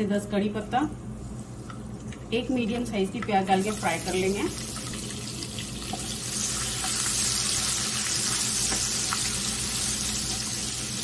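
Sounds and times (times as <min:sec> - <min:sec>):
onions sizzling in oil: 0:03.4 - 0:11.0.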